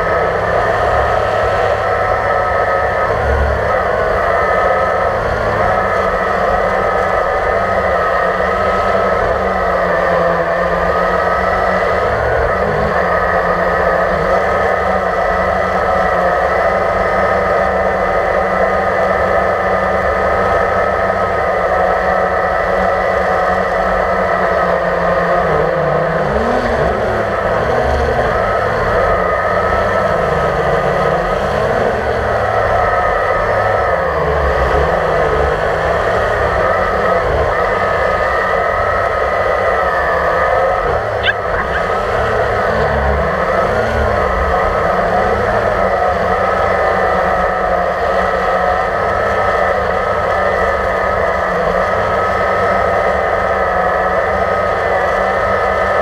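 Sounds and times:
drone propellers whirring: 0:23.6 - 0:47.7.

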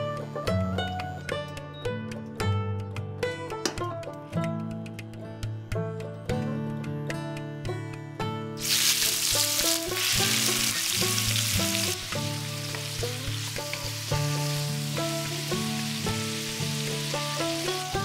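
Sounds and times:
background music: 0:00.0 - 0:18.0
prawns sizzling in hot oil: 0:08.6 - 0:18.0.

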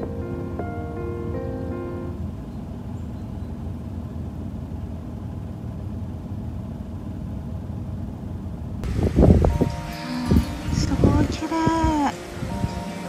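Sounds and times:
wind buffeting microphone: 0:08.8 - 0:12.9.

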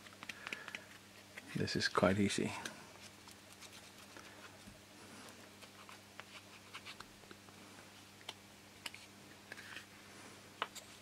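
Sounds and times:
steady low hum: 0:00.0 - 0:11.0
faint clicks and taps of wood: 0:00.2 - 0:01.0.

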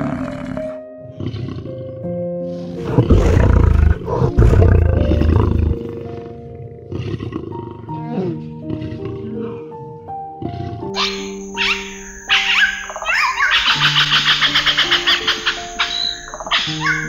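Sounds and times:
lion roaring: 0:00.0 - 0:02.1, 0:02.8 - 0:08.0, 0:08.6 - 0:09.6
soft background music: 0:00.0 - 0:17.0.

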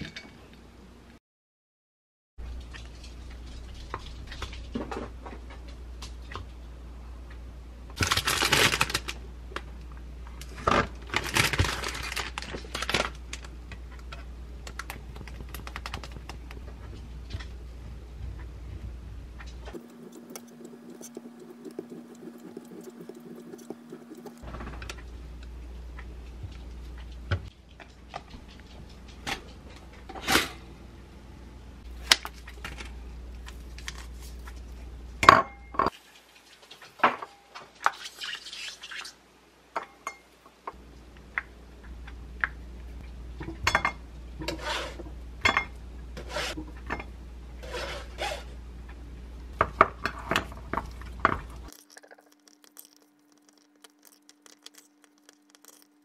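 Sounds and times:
utensils clinking on enamel bowl: 0:50.0 - 0:56.0.

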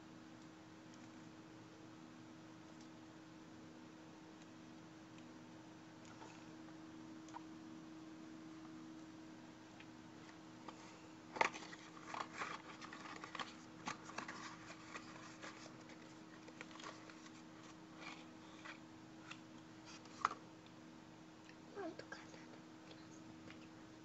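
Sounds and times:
faint steady hum: 0:00.0 - 0:24.0
plastic wrapper rustling and clicking: 0:10.2 - 0:20.4.

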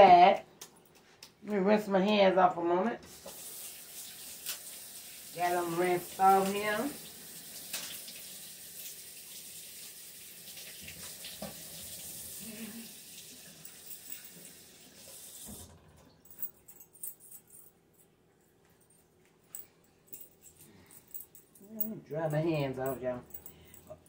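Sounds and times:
faucet water running into sink: 0:03.1 - 0:15.7.

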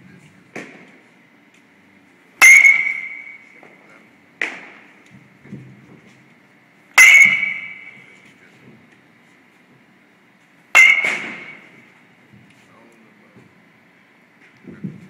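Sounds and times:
metal bat hitting balls: 0:00.5 - 0:01.0, 0:02.4 - 0:03.8, 0:04.4 - 0:05.0, 0:07.0 - 0:08.2, 0:10.7 - 0:11.9.

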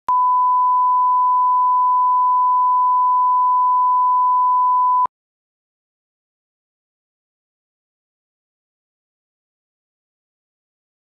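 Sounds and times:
steady test tone beep: 0:00.1 - 0:05.1.

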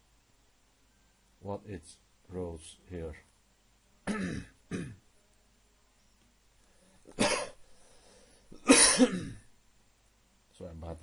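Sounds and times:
man coughing: 0:04.0 - 0:05.0, 0:07.1 - 0:07.6, 0:08.6 - 0:09.5.

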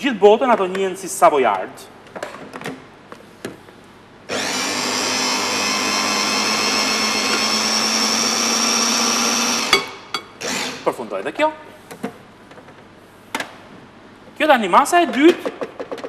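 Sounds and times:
electric blender running: 0:04.3 - 0:10.9.

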